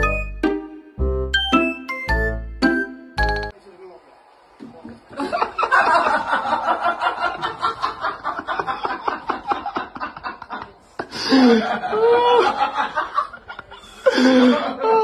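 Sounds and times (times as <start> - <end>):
person laughing breathily: 10.9 - 12.7, 13.5 - 15.0.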